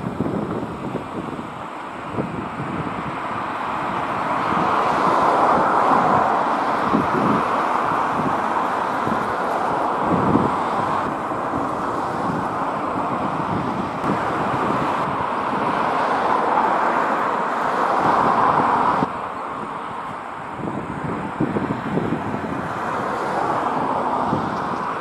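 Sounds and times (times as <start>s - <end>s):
road traffic passing: 0.0s - 25.0s
wind on microphone: 0.0s - 25.0s.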